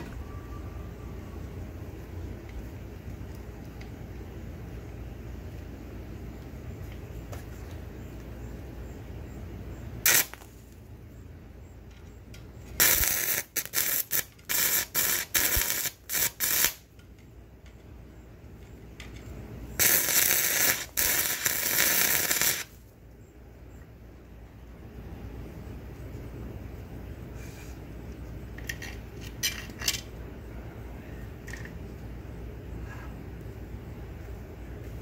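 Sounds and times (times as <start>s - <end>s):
welding arc crackling: 10.0s - 10.8s, 12.7s - 17.0s, 19.8s - 22.9s.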